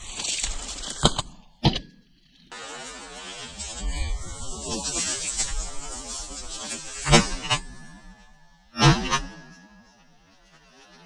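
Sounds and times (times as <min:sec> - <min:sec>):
rustling through dry brush: 0:00.0 - 0:01.1.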